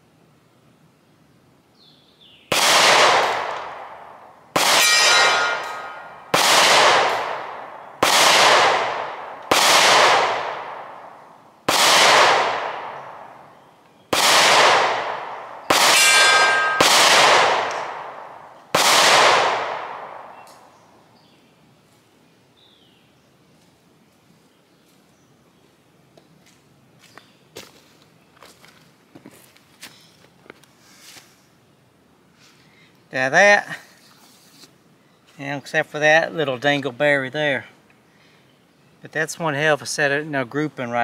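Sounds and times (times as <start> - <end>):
pistol shots echoing: 2.5 - 13.4, 14.1 - 20.7.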